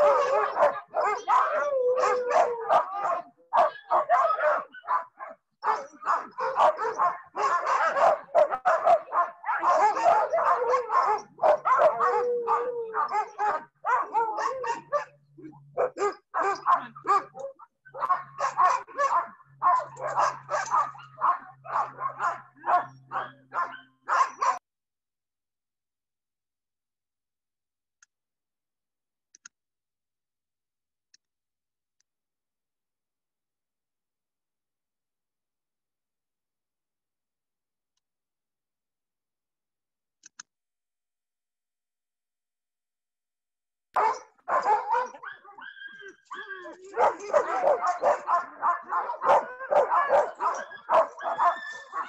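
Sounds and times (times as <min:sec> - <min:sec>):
sled dogs barking and yipping: 0:00.0 - 0:24.6, 0:44.0 - 0:52.0.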